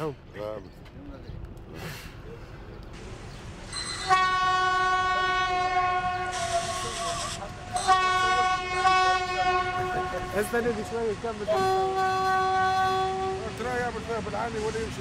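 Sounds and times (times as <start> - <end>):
locomotive horn blast: 3.7 - 14.0
burst of hiss: 6.2 - 7.6.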